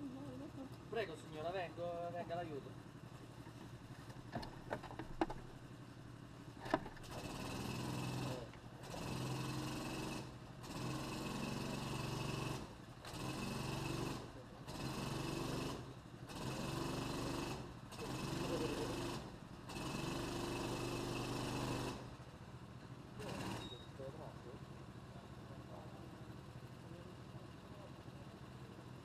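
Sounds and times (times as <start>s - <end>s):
small engine running: 0.0s - 29.0s
sharp knocks and clicks: 4.1s - 5.5s.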